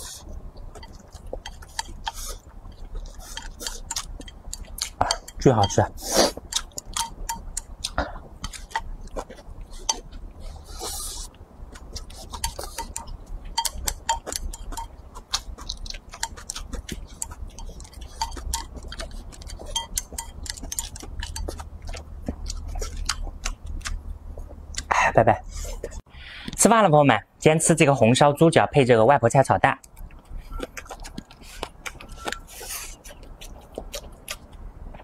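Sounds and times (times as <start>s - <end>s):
chopsticks clicking on ceramic bowl: 2.8s - 5.9s, 6.5s - 9.3s, 12.0s - 24.0s.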